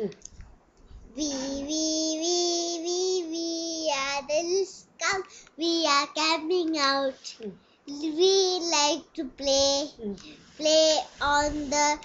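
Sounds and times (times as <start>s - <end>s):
boy singing: 1.2s - 7.3s, 10.6s - 12.0s.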